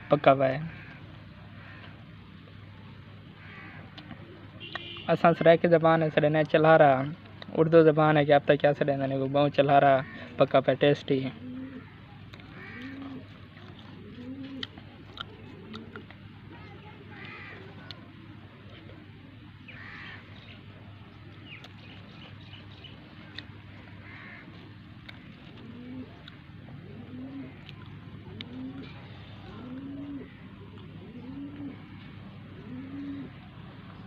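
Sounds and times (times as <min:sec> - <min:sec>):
low steady hum: 0:00.0 - 0:34.0
dove cooing: 0:11.3 - 0:20.5, 0:23.2 - 0:34.0.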